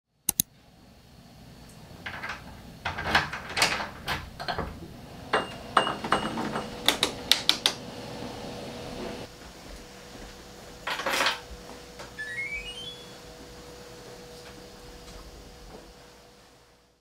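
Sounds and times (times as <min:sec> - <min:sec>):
glass door rattling and knocking: 0:02.1 - 0:04.9
short beeps: 0:12.2 - 0:13.2.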